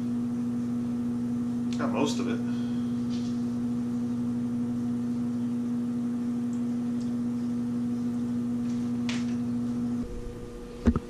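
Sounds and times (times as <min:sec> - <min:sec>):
exhaust fan humming: 0:00.0 - 0:11.0.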